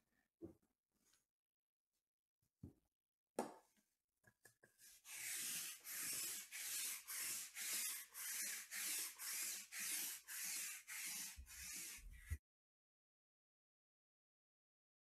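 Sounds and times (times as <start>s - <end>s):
lint roller rasping on cloth: 4.8s - 12.4s.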